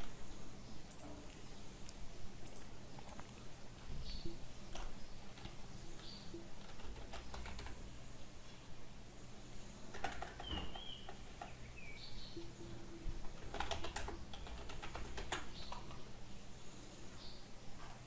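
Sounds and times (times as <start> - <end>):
computer keyboard typing: 6.4 - 7.9, 9.9 - 11.5, 12.7 - 16.1.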